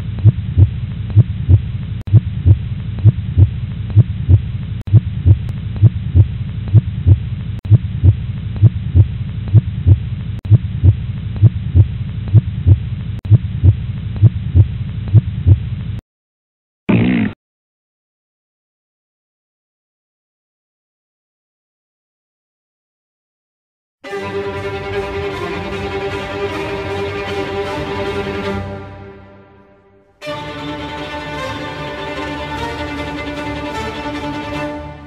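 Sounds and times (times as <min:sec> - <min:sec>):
low throbbing hum: 0:00.0 - 0:16.0.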